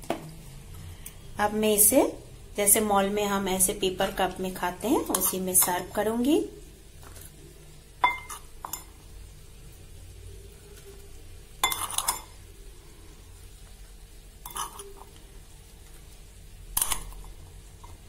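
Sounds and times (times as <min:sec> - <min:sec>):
spoon clinking against glass dish: 0:08.0 - 0:08.9, 0:11.6 - 0:12.3, 0:14.5 - 0:15.0.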